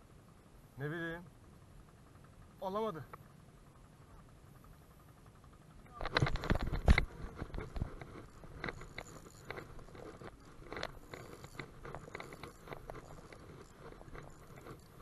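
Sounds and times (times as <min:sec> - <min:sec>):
fishing reel clicking: 0:06.1 - 0:15.0.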